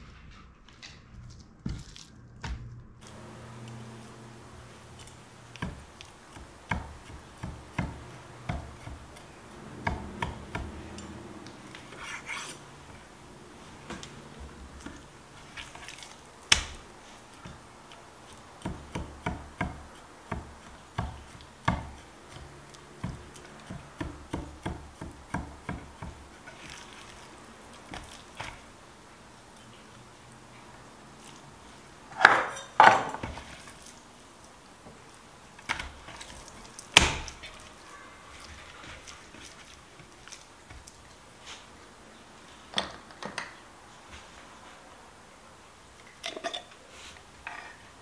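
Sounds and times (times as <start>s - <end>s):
knife tapping on board: 5.0s - 11.2s, 18.6s - 26.2s
scrapes on board: 11.8s - 12.6s.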